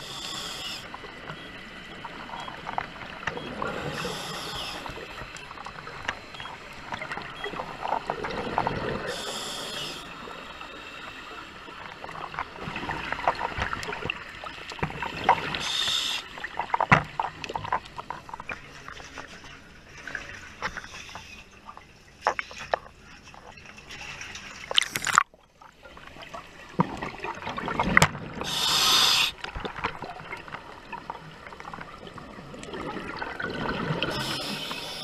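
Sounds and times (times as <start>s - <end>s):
diver regulator breathing: 0.0s - 0.9s, 3.6s - 5.2s, 8.8s - 10.2s, 15.5s - 16.3s, 28.4s - 29.4s, 34.0s - 35.0s
water lapping and dripping: 0.0s - 35.0s
bubbles gurgling: 7.0s - 9.2s, 11.8s - 15.6s, 26.2s - 28.5s, 29.6s - 34.7s.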